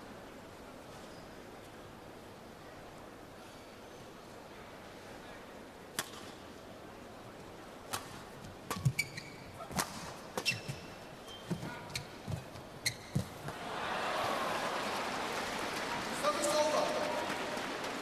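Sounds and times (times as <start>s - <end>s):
shoes squeaking on court: 8.0s - 13.6s
crowd applause: 13.5s - 18.0s.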